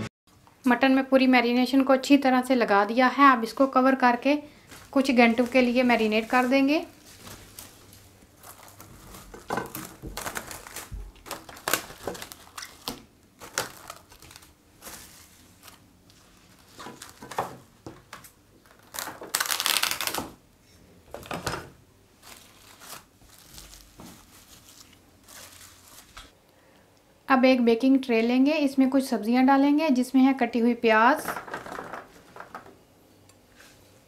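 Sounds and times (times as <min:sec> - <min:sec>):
cling film crinkling: 0:04.6 - 0:20.4, 0:22.2 - 0:26.4, 0:31.2 - 0:32.7.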